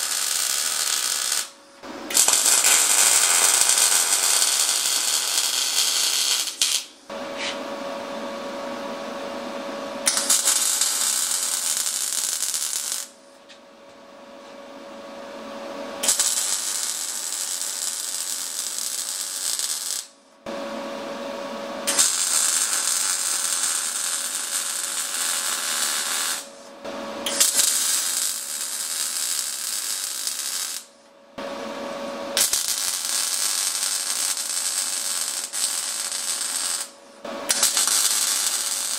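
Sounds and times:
welder arc crackling: 0:00.0 - 0:07.0, 0:10.1 - 0:13.2, 0:16.0 - 0:20.1, 0:21.9 - 0:26.5, 0:27.3 - 0:30.9, 0:32.4 - 0:38.9.

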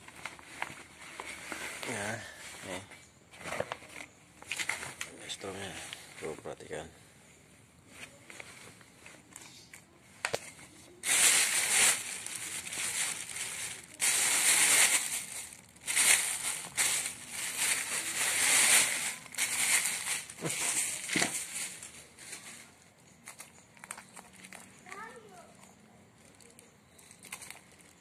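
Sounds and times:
plastic bag crinkling: 0:10.4 - 0:28.0.

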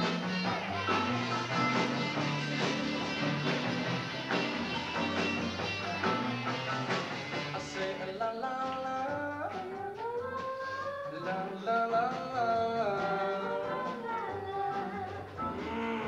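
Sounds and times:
drums: 0:00.0 - 0:16.0
electric guitar: 0:00.0 - 0:16.0
person singing: 0:07.4 - 0:16.0.

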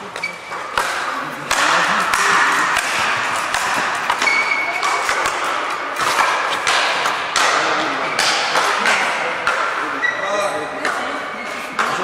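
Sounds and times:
rackets hitting ball: 0:00.0 - 0:12.0.

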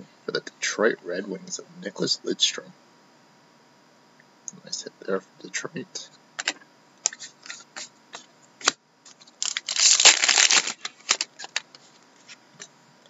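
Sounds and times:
foil wrapper crinkling: 0:09.1 - 0:12.4.

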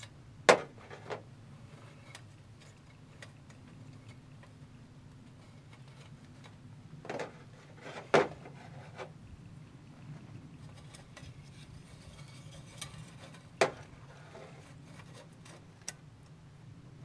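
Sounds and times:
steel rods clinking on metal stove: 0:10.6 - 0:14.0.

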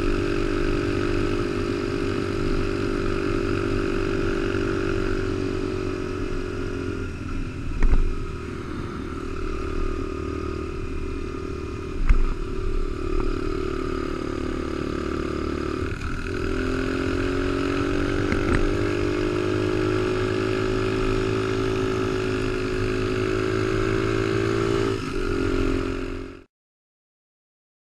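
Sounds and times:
motorbike engine cruising: 0:00.0 - 0:26.4
sharp thumps: 0:11.9 - 0:12.5.

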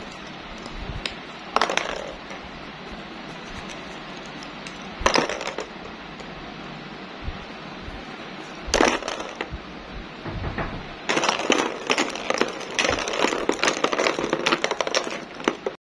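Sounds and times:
plastic balls clattering: 0:00.0 - 0:02.5, 0:03.4 - 0:06.3, 0:08.7 - 0:09.6, 0:11.1 - 0:15.8.

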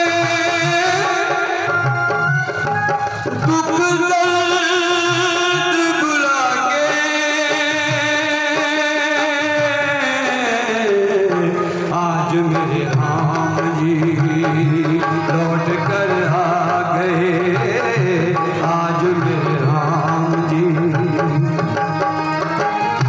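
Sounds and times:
steady drum beat: 0:11.3 - 0:23.0.

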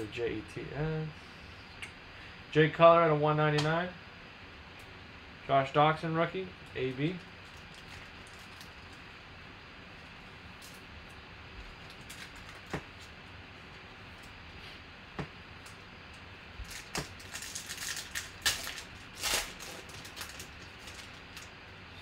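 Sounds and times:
foil wrapper crinkling and tearing: 0:07.1 - 0:09.0, 0:11.8 - 0:13.2, 0:16.6 - 0:21.6.

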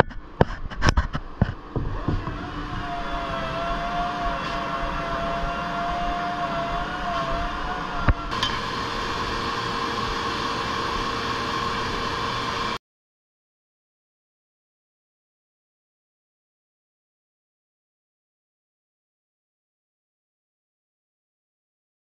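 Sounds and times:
woodworking machinery humming: 0:00.0 - 0:12.8.

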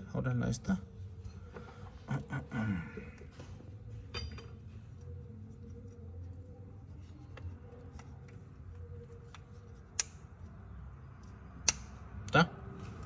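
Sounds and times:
low steady hum: 0:00.0 - 0:13.0
clicks and taps of parts handled: 0:09.2 - 0:10.4, 0:11.1 - 0:12.4.

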